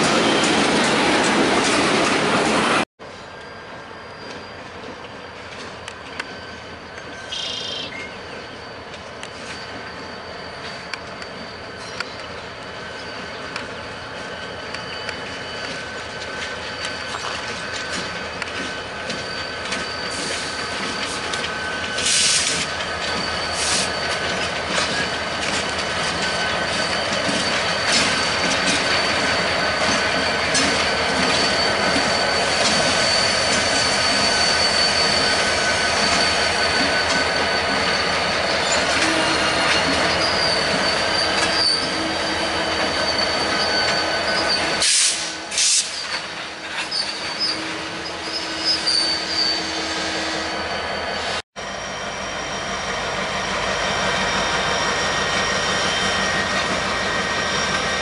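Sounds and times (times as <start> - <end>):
rumble of wheels and engines: 0.0 - 34.6
train wheels squealing on rails: 0.0 - 58.0.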